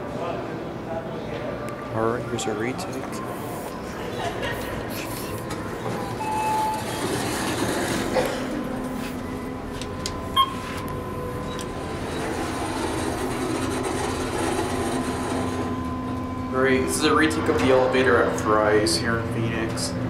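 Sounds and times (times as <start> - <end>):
elevator machinery rumbling: 2.2 - 20.0
short tone: 6.0 - 7.4, 10.3 - 12.3.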